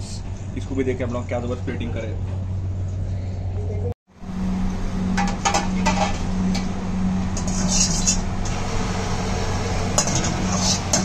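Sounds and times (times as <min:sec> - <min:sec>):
gas burner rushing: 0:04.2 - 0:11.0.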